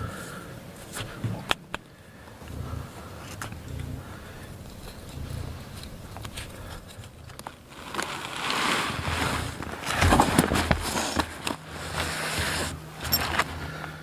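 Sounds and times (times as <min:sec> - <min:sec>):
backpack rustling and knocking: 0:07.9 - 0:13.6.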